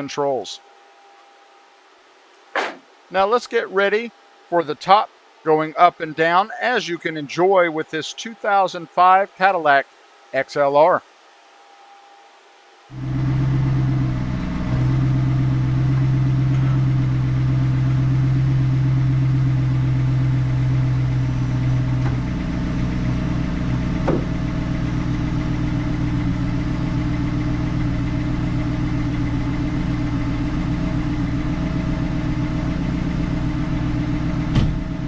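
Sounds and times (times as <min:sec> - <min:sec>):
car roof mechanism humming: 0:13.0 - 0:35.0.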